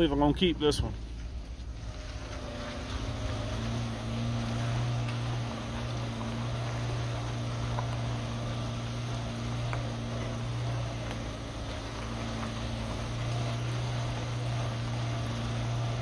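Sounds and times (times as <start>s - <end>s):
car engine humming: 0.0s - 16.0s
tyres on rocky dirt track: 0.0s - 16.0s.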